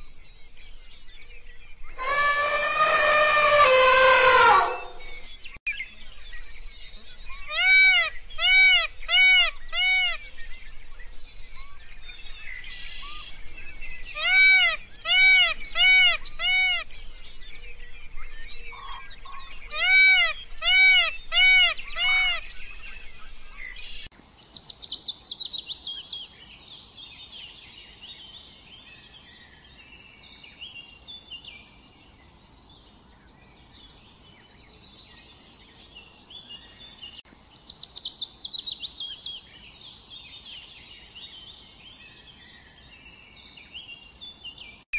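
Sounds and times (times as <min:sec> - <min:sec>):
peacock calling: 0:01.9 - 0:05.3, 0:07.3 - 0:10.3, 0:14.1 - 0:16.9, 0:18.7 - 0:24.0
small birds chirping: 0:04.3 - 0:44.9.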